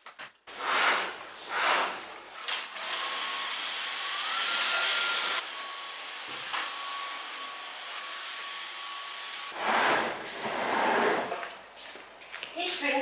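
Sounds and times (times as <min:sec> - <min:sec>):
vacuum cleaner motor whine: 0:02.7 - 0:09.6.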